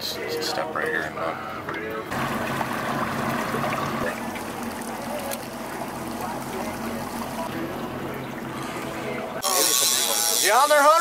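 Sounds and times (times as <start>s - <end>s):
boat motor humming: 0.8s - 11.0s
water splashing along hull: 2.1s - 11.0s.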